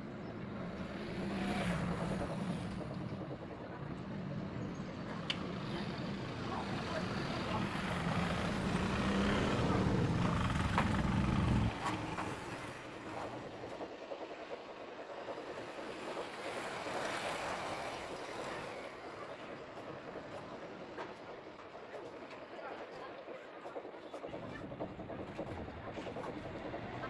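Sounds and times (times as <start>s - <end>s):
vehicle engine running: 0.6s - 14.0s.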